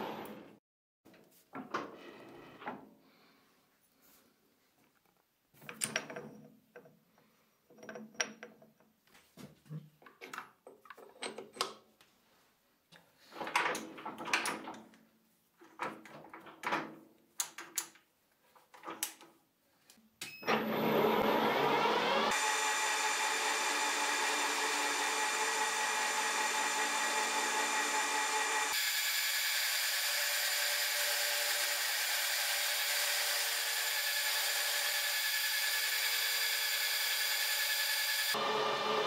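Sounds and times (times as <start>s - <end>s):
lathe running with steady whine: 22.3s - 39.0s.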